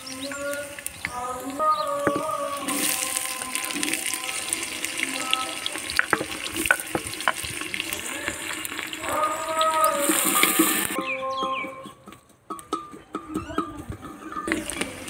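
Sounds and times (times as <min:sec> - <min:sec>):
onion sizzling in hot oil: 0:00.0 - 0:11.0, 0:14.5 - 0:15.0
wooden ladle stirring pot: 0:00.8 - 0:11.0, 0:14.4 - 0:15.0.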